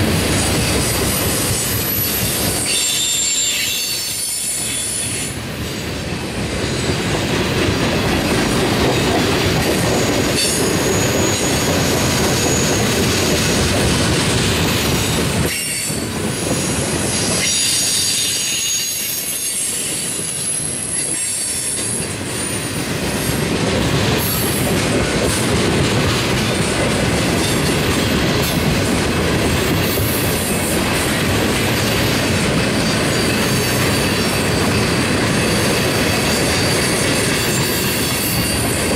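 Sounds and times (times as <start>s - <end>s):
clickety-clack over rail joints: 0.0s - 38.9s
train wheels on rail: 0.0s - 38.9s
high wheel squeal: 0.7s - 5.4s, 10.0s - 13.4s, 15.5s - 22.7s, 32.8s - 38.9s.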